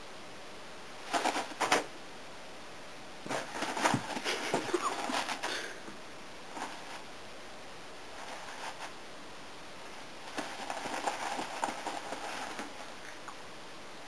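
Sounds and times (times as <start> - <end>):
paper towel rustling and crinkling: 3.3 - 5.7, 6.5 - 7.1, 10.2 - 13.0.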